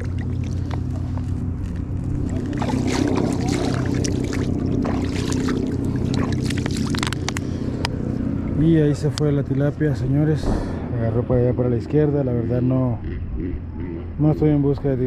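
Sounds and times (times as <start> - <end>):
hands splashing in water: 0.0 - 7.5
steady low rumble: 0.0 - 15.0.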